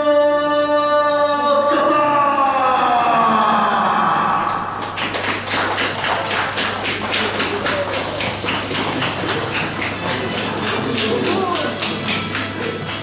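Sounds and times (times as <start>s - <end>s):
people clapping: 4.0s - 13.0s.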